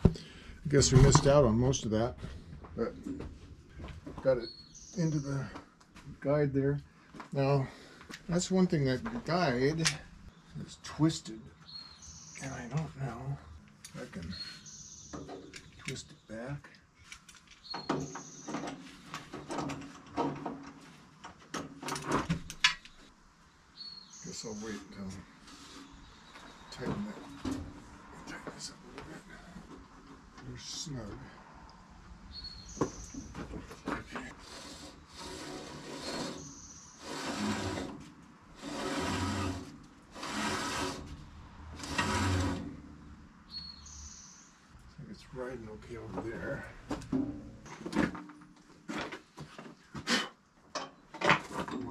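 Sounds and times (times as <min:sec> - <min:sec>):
metal knocking and clanking: 0:00.8 - 0:01.6, 0:17.8 - 0:22.8, 0:46.9 - 0:49.2
saw blade and wheel grinding: 0:34.3 - 0:43.0.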